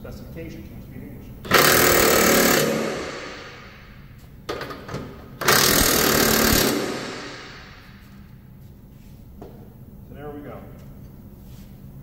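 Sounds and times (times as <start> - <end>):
impact wrench hammering: 1.5 - 8.2.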